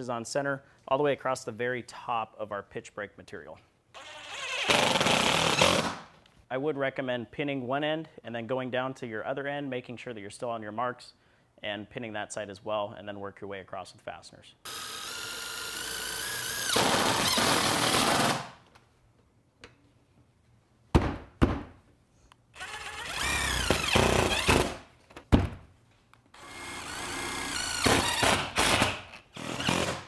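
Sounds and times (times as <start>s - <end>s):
impact driver driving screws: 4.0s - 6.0s, 14.7s - 18.4s, 22.6s - 24.8s, 26.4s - 30.0s.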